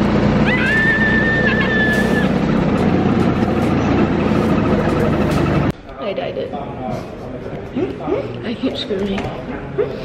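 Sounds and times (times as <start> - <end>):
high held squeal: 0.4 - 2.4.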